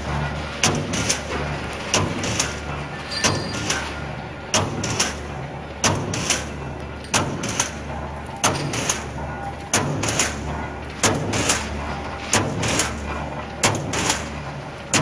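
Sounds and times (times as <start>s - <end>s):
steady low machine hum: 0.0s - 15.0s
machine blade clanking on steel sheet: 0.6s - 4.0s.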